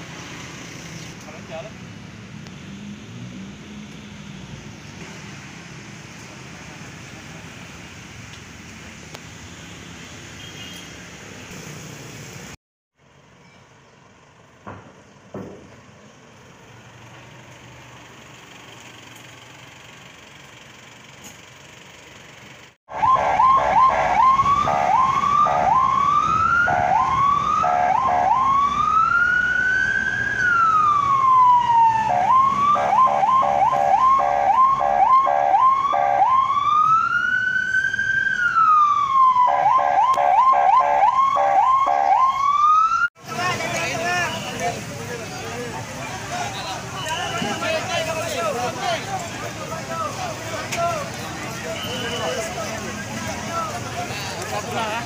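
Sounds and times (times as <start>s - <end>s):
emergency vehicle siren: 22.9s - 43.2s.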